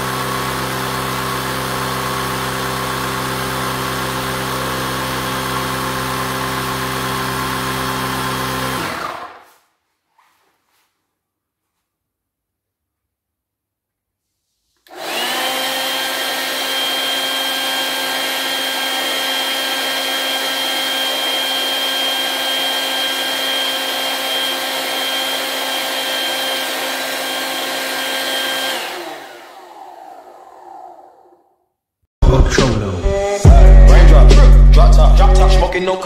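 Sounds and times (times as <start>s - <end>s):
air compressor whining: 0.0s - 9.6s, 14.8s - 31.5s.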